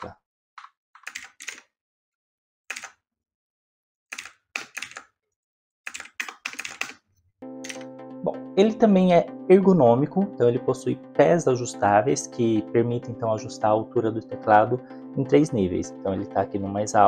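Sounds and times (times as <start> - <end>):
mechanical keyboard typing clicks: 1.0 - 1.7, 2.7 - 3.0, 4.1 - 5.1, 5.9 - 7.0, 7.6 - 7.9
music: 7.4 - 17.0.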